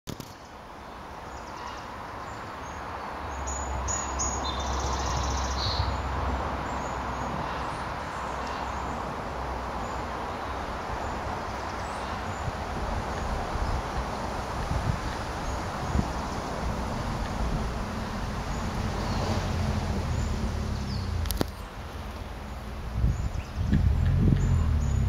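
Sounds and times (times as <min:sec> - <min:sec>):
wind rumble on microphone: 0:10.7 - 0:21.6, 0:22.6 - 0:25.0.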